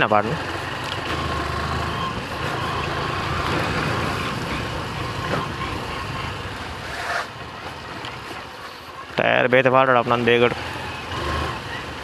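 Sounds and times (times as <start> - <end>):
wind and tyre noise: 0.0 - 12.0.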